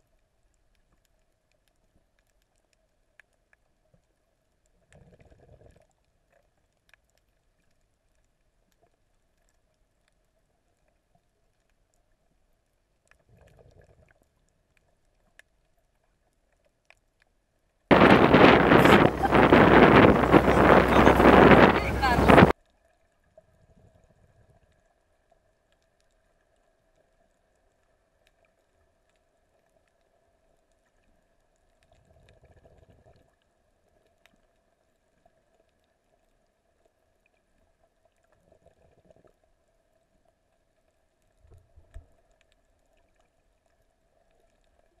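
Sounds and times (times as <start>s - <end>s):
muffled underwater sound: 17.9s - 22.5s
soft low rumbles: 17.9s - 22.5s.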